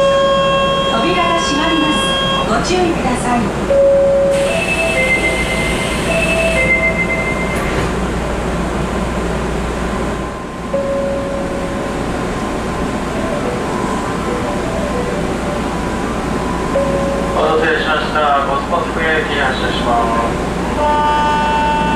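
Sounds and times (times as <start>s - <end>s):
train interior noise: 0.0s - 21.9s
train doors shutting click: 4.3s - 8.0s.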